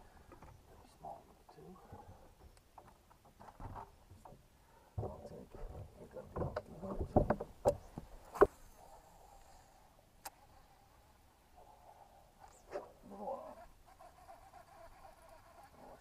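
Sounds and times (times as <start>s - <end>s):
knocks and bumps on boat: 5.0s - 7.8s.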